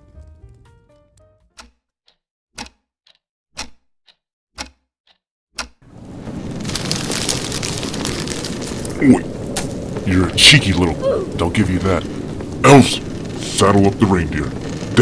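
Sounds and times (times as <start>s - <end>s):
crackling fire: 0.0s - 1.7s, 5.6s - 15.0s
clock ticking: 1.6s - 5.9s.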